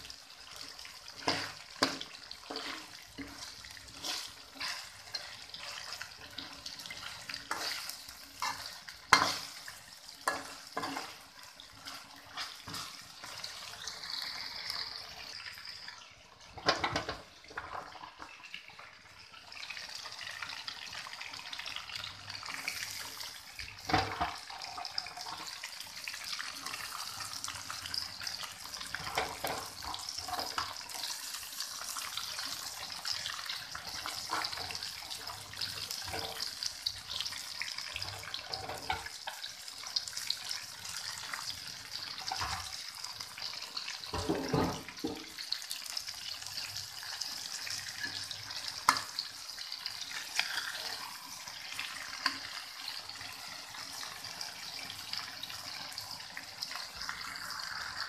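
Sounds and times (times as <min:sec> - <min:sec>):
metal spatula scraping a pan: 0:00.0 - 0:14.3, 0:26.6 - 0:33.0, 0:33.8 - 0:39.4, 0:50.0 - 0:51.2
chicken sizzling in a wok: 0:00.0 - 0:58.0.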